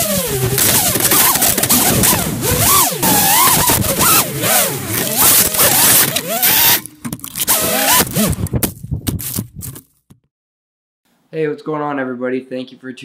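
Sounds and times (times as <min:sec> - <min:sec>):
quadcopter motors whining: 0:00.0 - 0:08.5.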